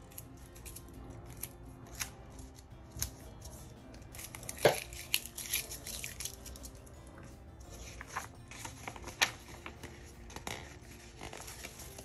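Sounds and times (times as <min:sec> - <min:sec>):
paper rustling and crinkling: 0:07.7 - 0:12.0.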